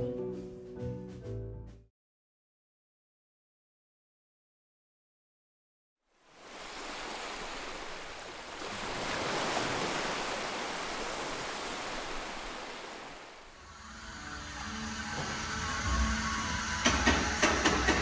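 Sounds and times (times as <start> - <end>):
wind: 6.1 - 14.0
sea rushing beneath ship: 6.2 - 13.6.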